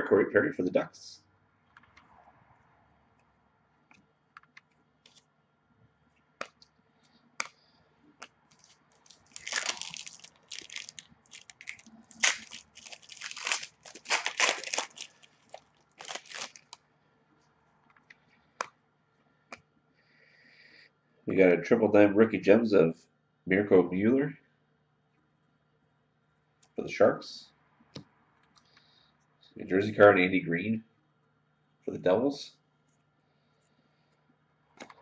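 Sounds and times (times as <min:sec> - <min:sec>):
plastic sleeve crinkling: 0:08.5 - 0:16.8.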